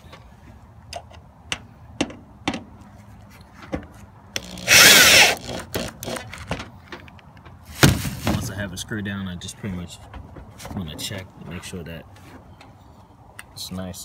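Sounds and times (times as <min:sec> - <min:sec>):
power drill driving a screw: 0:04.4 - 0:06.3.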